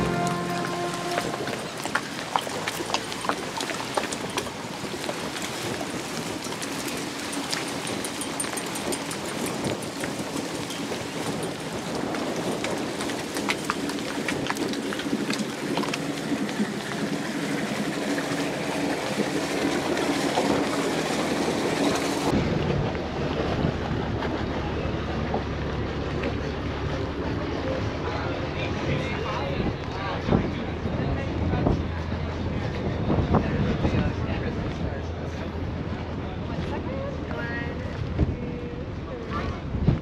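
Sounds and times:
small waves washing on shore: 0.0 - 26.9
engine hum: 0.0 - 39.0
wind on microphone: 28.7 - 40.0.

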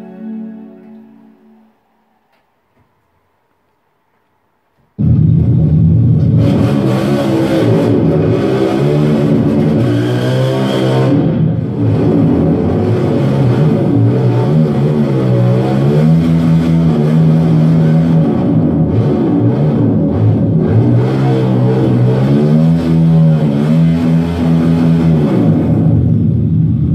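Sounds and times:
guitar music: 0.0 - 2.2
motorcycle engine revving: 5.0 - 26.9.

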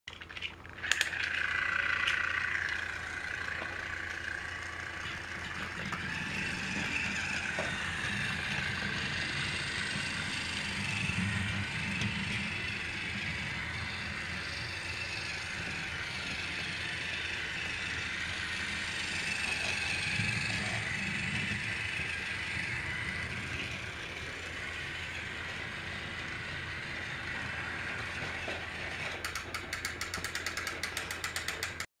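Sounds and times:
toy train motor whirring: 0.3 - 31.9
rapid clicking: 28.1 - 31.9.

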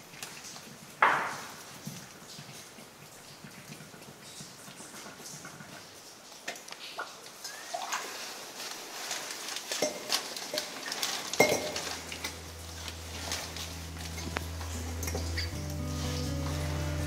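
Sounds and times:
water splashing: 0.0 - 17.0
bottle clinking against rock: 11.4 - 12.5, 14.1 - 15.6
soft background music: 11.4 - 17.0.

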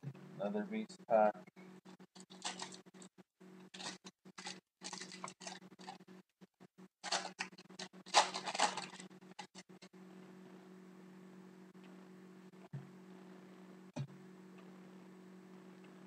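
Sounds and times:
foil wrapper crinkling and tearing: 2.2 - 2.9, 3.7 - 6.0, 7.0 - 9.6.

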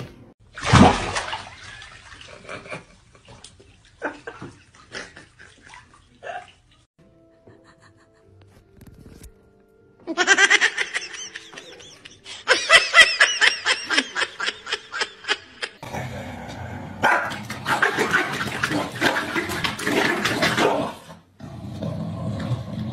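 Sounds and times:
dogs growling and barking: 15.8 - 22.9.

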